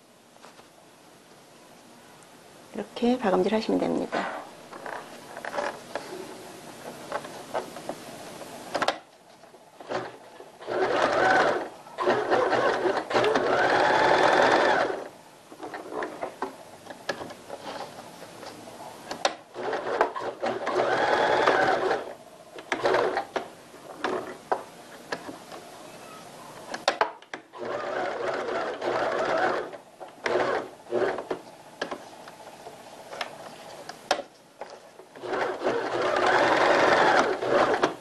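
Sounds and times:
electric sewing machine stitching: 0:09.8 - 0:15.1, 0:19.5 - 0:23.4, 0:27.5 - 0:31.4, 0:35.2 - 0:38.0.

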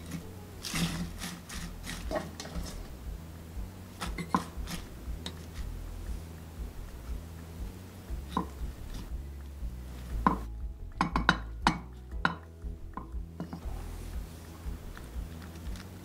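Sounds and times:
knocks and clicks against a pot: 0:04.0 - 0:05.7, 0:08.1 - 0:09.5, 0:10.1 - 0:13.6.

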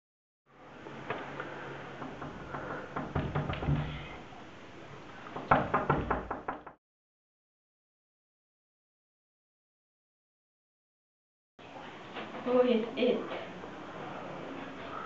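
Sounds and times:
low room noise: 0:00.5 - 0:06.8, 0:11.6 - 0:15.0
fist knocking on wooden door: 0:02.0 - 0:04.1, 0:05.4 - 0:06.8.

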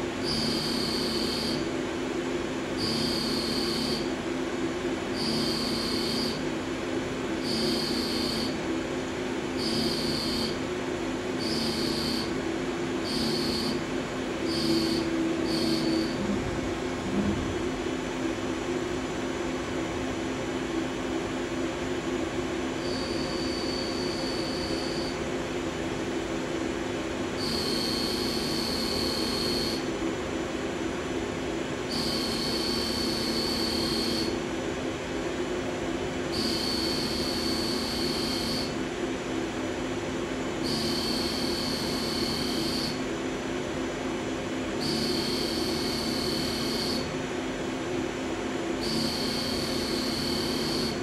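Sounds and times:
machine humming: 0:05.0 - 0:06.5, 0:07.4 - 0:08.6, 0:11.4 - 0:26.2.

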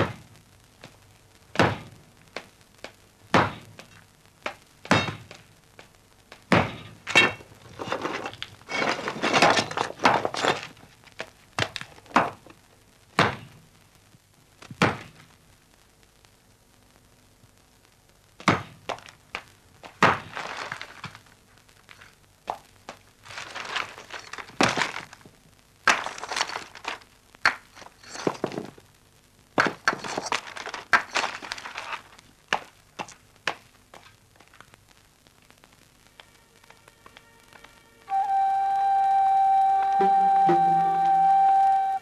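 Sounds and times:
sharp thuds and cracks: 0:01.6 - 0:07.5, 0:18.4 - 0:21.2, 0:25.8 - 0:28.7.

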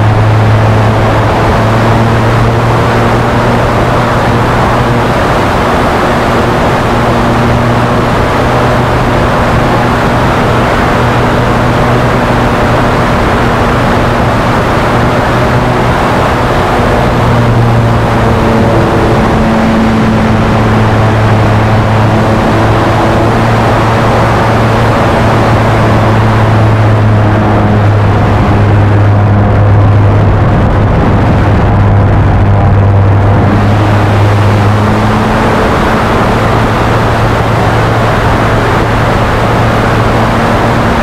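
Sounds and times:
model plane engine droning: 0:00.0 - 0:41.0
wind noise on microphone: 0:00.0 - 0:41.0.

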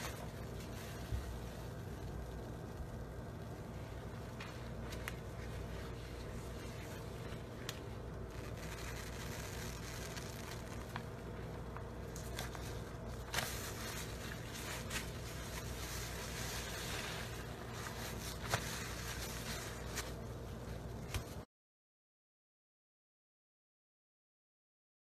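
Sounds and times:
low hum: 0:00.0 - 0:21.4
sharp crackles: 0:04.3 - 0:20.2
soap lather squelching: 0:13.2 - 0:20.2.

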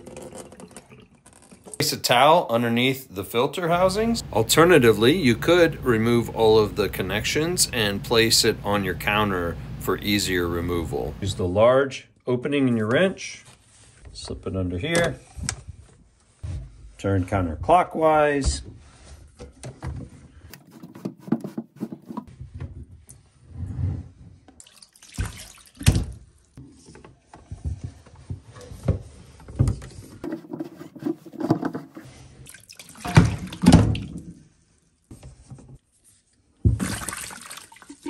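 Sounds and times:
water running into a sink: 0:24.6 - 0:26.2, 0:32.5 - 0:34.2, 0:36.7 - 0:38.0.

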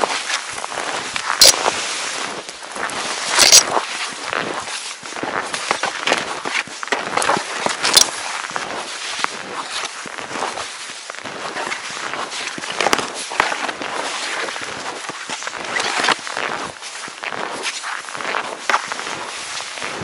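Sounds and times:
skis crunching through snow: 0:00.0 - 0:20.0
sharp clicks: 0:03.4 - 0:03.6.

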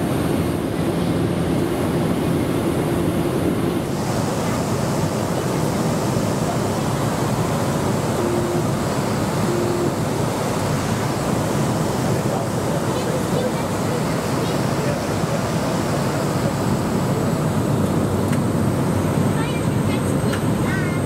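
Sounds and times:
turboprop engine and propeller: 0:00.0 - 0:21.0.

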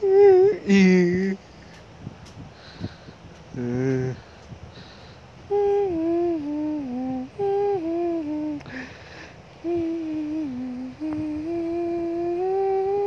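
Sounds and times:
person humming a tune: 0:00.0 - 0:01.4, 0:03.5 - 0:04.3, 0:05.5 - 0:13.0
breathy hiss: 0:00.0 - 0:13.0.

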